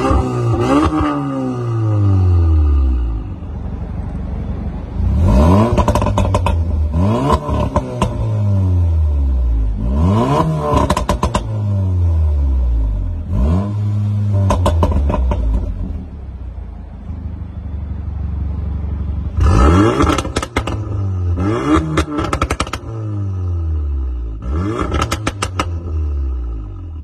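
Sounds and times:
car engine revving: 0.0s - 16.3s, 19.1s - 27.0s
exhaust crackles: 4.9s - 16.2s, 19.1s - 27.0s.

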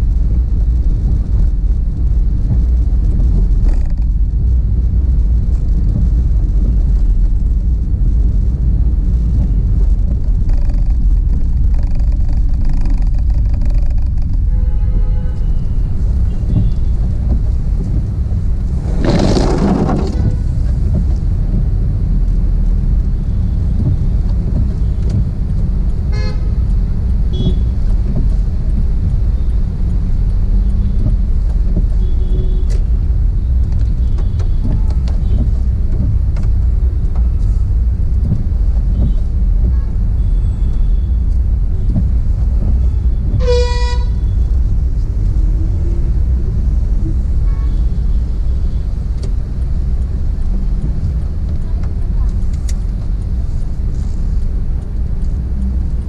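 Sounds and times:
car interior driving rumble: 0.0s - 56.0s
car horns honking: 43.4s - 44.3s.

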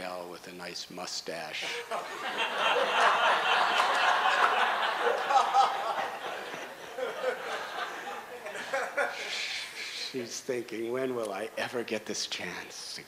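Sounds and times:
audience laughing: 1.6s - 9.8s.

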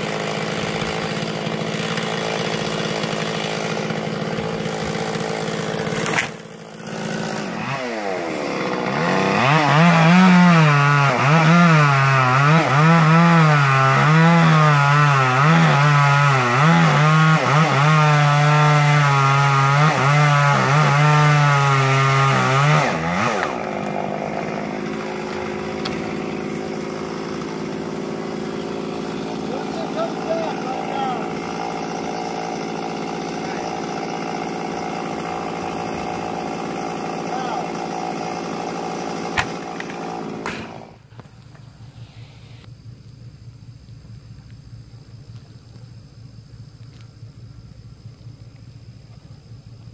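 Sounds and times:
chainsaw cutting a tree limb: 0.0s - 41.3s.

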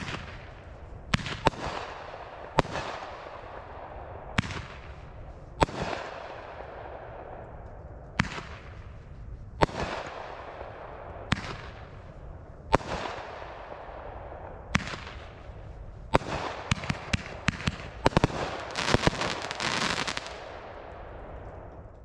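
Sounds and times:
firework bangs: 12.8s - 21.7s
firework crackling: 16.1s - 21.4s.

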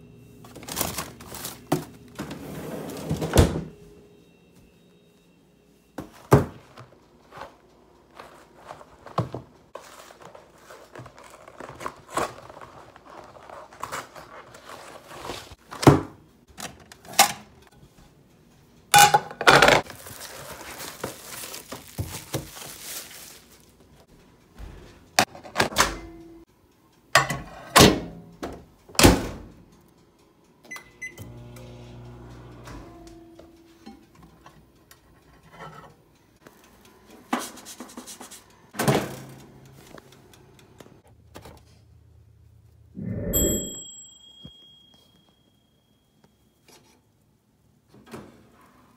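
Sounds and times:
wrapping rustling: 0.5s - 1.8s, 7.3s - 15.6s, 19.8s - 24.1s
microwave oven humming: 30.6s - 34.7s
microwave keypad beep: 30.7s - 31.3s.

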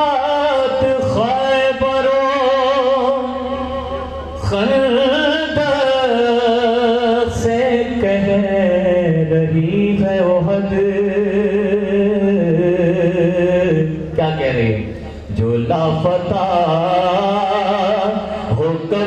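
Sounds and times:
man singing with vibrato: 0.0s - 19.0s.

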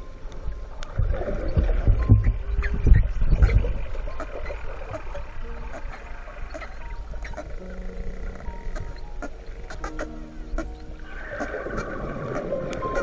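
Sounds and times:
underwater rumble: 0.0s - 9.2s
dull underwater thumps: 0.9s - 5.0s.

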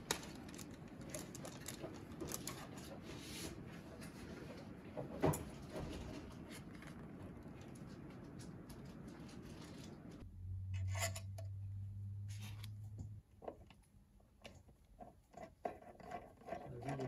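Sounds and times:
low steady hum: 5.3s - 15.0s.

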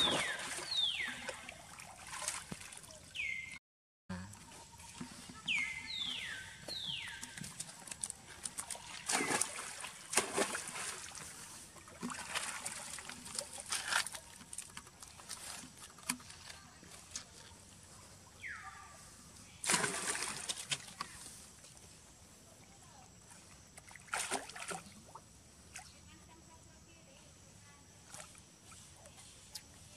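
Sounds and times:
monkeys splashing in water: 0.0s - 3.4s, 4.4s - 16.3s, 19.6s - 21.2s, 23.9s - 25.2s.

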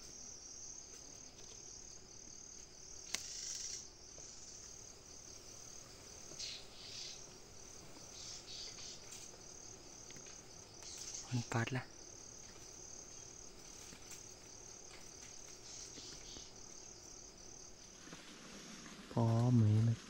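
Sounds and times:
insect chirring: 0.0s - 20.0s
rustling: 12.2s - 20.0s.

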